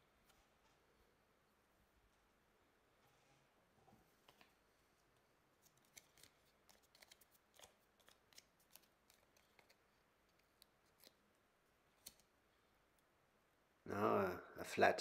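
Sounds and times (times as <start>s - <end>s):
fingers crinkling sticker sheet: 5.6s - 11.2s.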